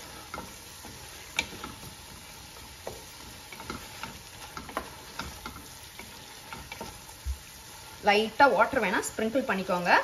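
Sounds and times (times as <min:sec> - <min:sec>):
spatula scraping and tapping pot: 0:00.0 - 0:07.8
faint sizzle: 0:00.0 - 0:10.0.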